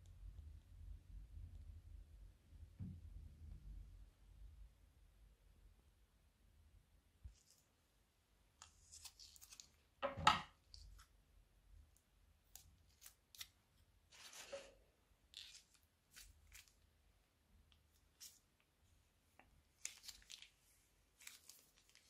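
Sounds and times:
plastic rustling: 19.8s - 22.0s.

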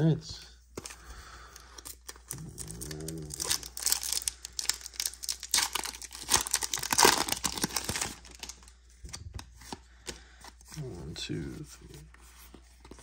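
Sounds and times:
foil wrapper crinkling and tearing: 1.5s - 9.2s.

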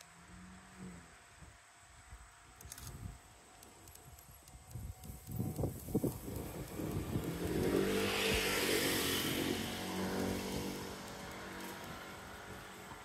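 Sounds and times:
vehicle passing by: 5.9s - 13.0s.

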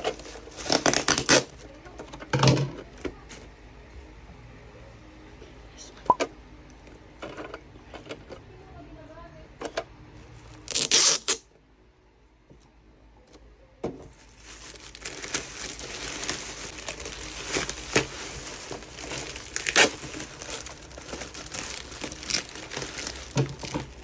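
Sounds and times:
plastic bag crinkling: 0.0s - 1.6s, 14.1s - 24.0s.

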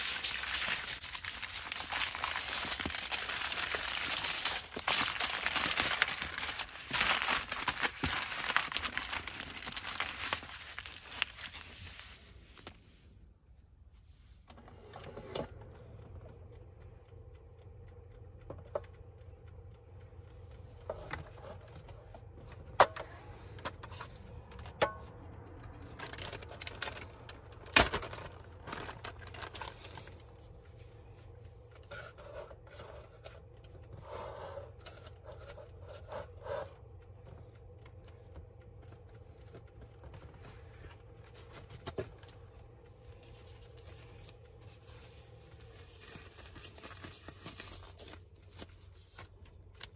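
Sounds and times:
aluminium foil crinkling: 0.0s - 12.8s, 26.0s - 30.2s, 43.2s - 49.2s
plastic bag crinkling: 0.0s - 12.8s
faint hum: 0.0s - 49.9s.

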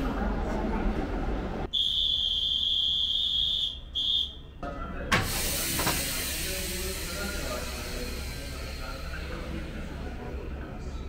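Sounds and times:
train coupler clunk: 5.1s - 6.3s
hissing air: 5.2s - 10.4s.

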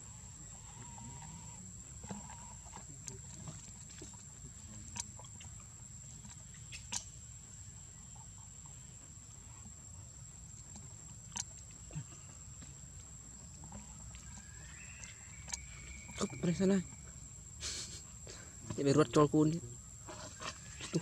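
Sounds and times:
high-pitched insect drone: 14.2s - 18.0s.

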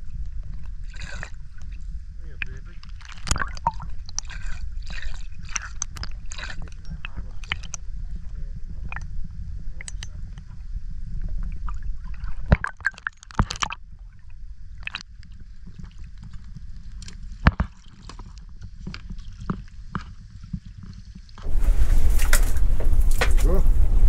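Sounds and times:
water sloshing around a boat: 0.0s - 9.0s, 11.4s - 24.0s
steady low rumble: 0.0s - 12.5s, 21.4s - 24.0s.

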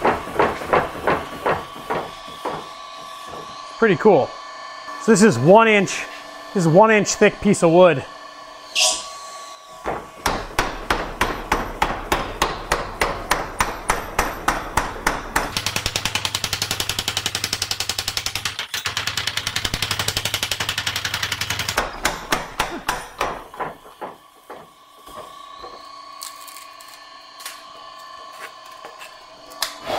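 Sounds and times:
power hammer striking wood: 0.0s - 3.6s, 9.8s - 25.8s.

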